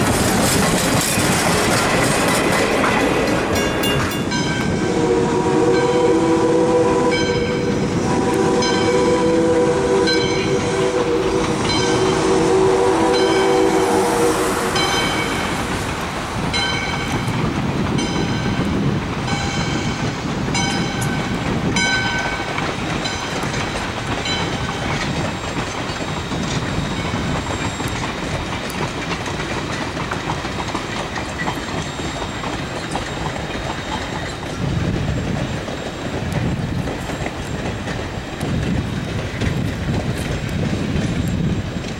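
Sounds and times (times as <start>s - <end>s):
train rumble: 0.0s - 41.9s
wheels clacking on rails: 0.0s - 41.9s
crossing bell dinging: 3.0s - 6.4s, 7.0s - 7.9s, 8.5s - 15.8s, 16.4s - 25.2s
steam locomotive chime whistle: 3.5s - 15.8s, 16.5s - 28.3s, 31.3s - 34.6s.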